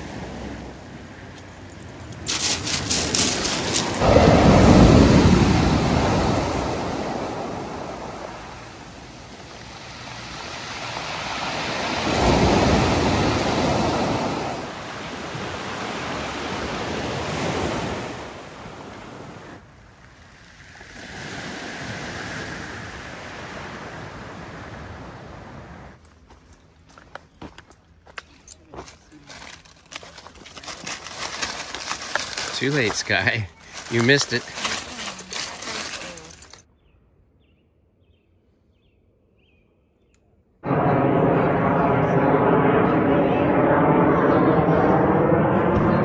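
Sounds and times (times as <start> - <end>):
waves washing up pebble beach: 2.1 - 19.5.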